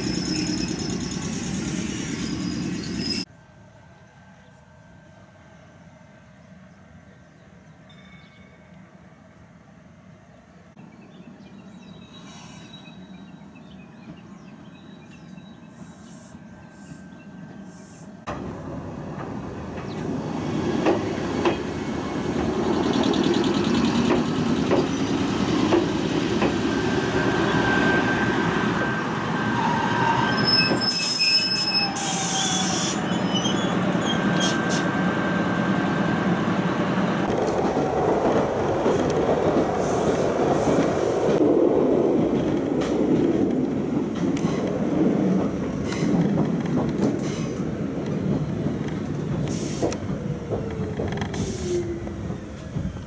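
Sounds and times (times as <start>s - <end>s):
train noise from on board: 0.0s - 53.0s
train passing alongside: 0.0s - 53.0s
wheels clattering over rail joints: 42.2s - 51.4s
burst of hiss: 49.5s - 50.0s.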